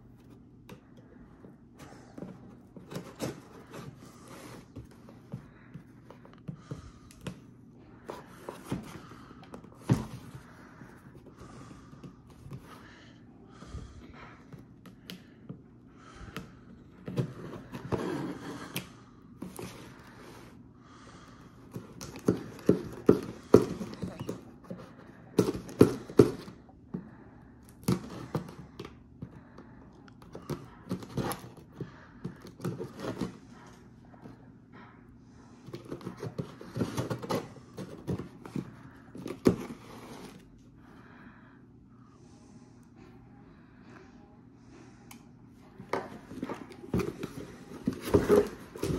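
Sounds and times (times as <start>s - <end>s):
tape and cardboard crackling: 45.9s - 48.9s.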